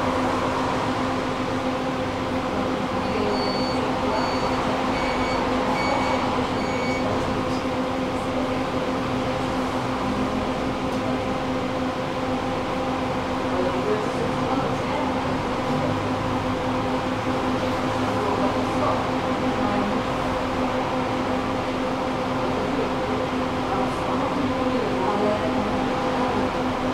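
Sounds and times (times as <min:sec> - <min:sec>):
tram rumbling: 0:00.0 - 0:12.4
short high beeps: 0:03.0 - 0:07.1.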